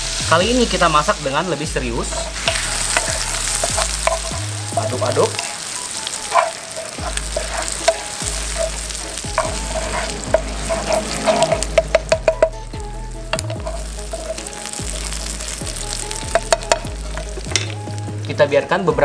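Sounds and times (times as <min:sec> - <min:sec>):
food sizzling in a frying pan: 0:00.0 - 0:19.0
wooden spatula scraping a pan: 0:02.0 - 0:12.6, 0:13.3 - 0:17.8.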